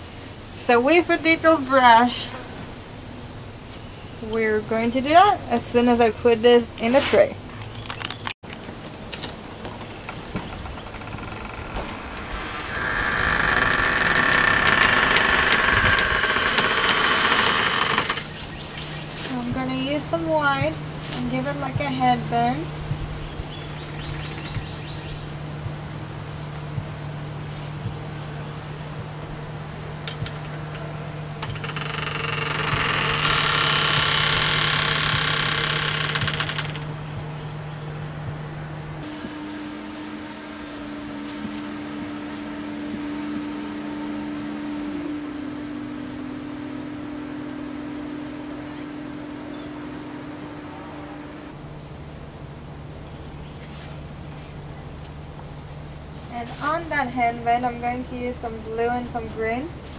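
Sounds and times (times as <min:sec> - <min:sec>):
motor running with high whine: 0:09.4 - 0:52.8.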